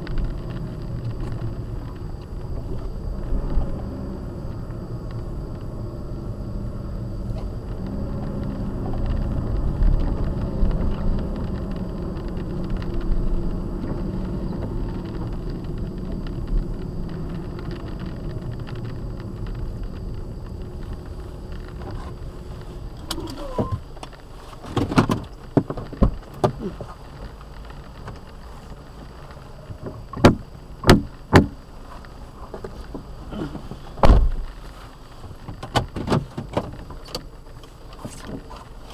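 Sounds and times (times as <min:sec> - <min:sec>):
car rolling on wet pavement: 0:00.0 - 0:38.9.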